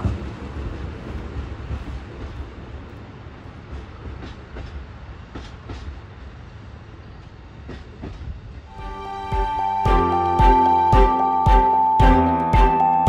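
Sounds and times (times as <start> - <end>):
diesel train engines rumbling: 0.0 - 13.0
train wheels clacking over rail joints: 3.6 - 6.0
music: 8.7 - 13.0.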